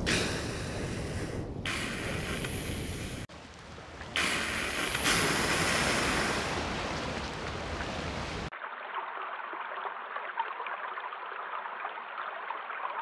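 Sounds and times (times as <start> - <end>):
whales blowing breathy whooshes: 0.0 - 3.3, 4.2 - 7.0
low rumble of wind and water: 0.0 - 9.4.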